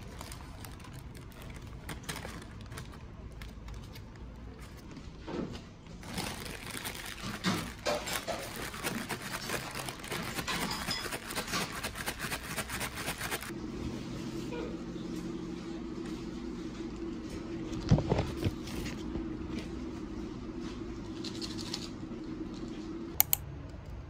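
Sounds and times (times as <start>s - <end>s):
paper bags rustling: 0.0s - 13.5s.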